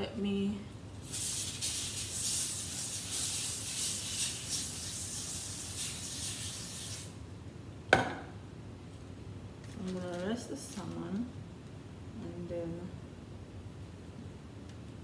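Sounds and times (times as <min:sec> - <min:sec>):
cooking spray hissing: 0:01.0 - 0:07.2
sharp knock: 0:07.9 - 0:08.3.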